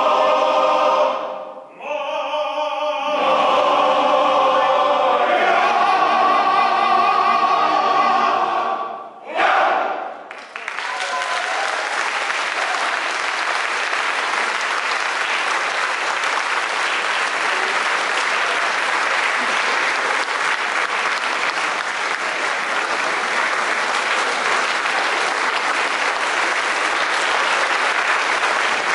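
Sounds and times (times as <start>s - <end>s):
audience applauding: 10.3s - 28.9s.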